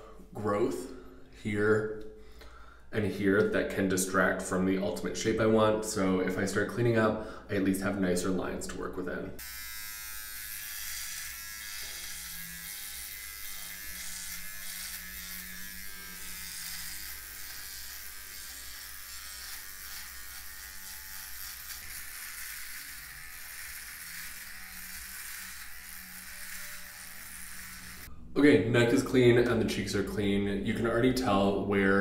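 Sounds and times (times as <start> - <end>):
electric trimmer buzzing: 9.4 - 28.1.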